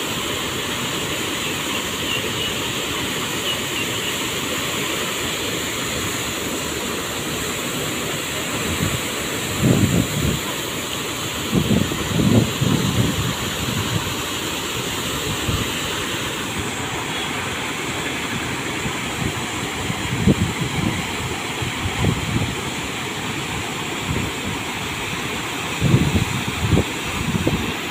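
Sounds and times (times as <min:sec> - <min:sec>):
water gushing into a river: 0:00.0 - 0:27.9
wind buffeting microphone: 0:08.7 - 0:10.4, 0:11.5 - 0:14.1.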